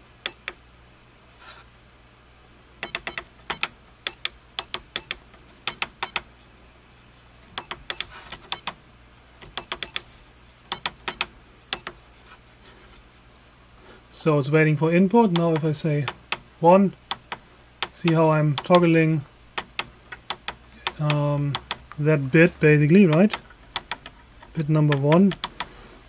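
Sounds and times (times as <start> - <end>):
keypad buttons clicking: 0.2 - 0.6, 2.8 - 6.3, 7.5 - 8.8, 9.4 - 10.1, 10.7 - 12.0, 17.0 - 18.9, 19.6 - 22.0, 23.0 - 24.2, 24.8 - 25.7.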